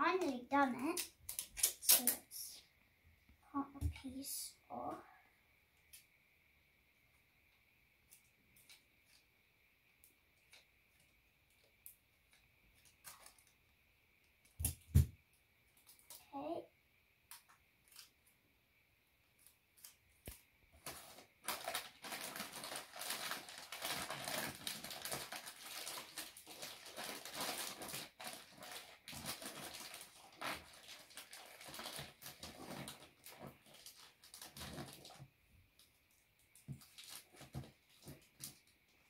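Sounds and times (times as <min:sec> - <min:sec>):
wrapping paper crinkling: 0:12.7 - 0:13.6, 0:19.4 - 0:39.0.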